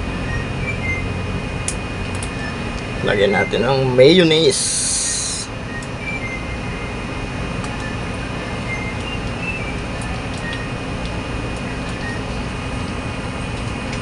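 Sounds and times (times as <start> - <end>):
appliance machine hum: 0.0 - 14.0
faint high chirps: 7.6 - 12.5.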